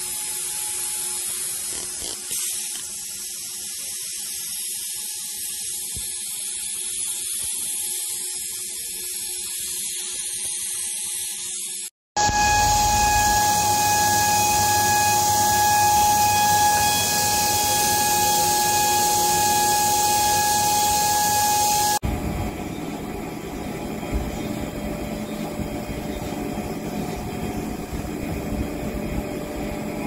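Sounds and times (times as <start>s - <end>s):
high spindle whine: 12.2s - 30.0s
low machine rumble and hum: 12.2s - 30.0s.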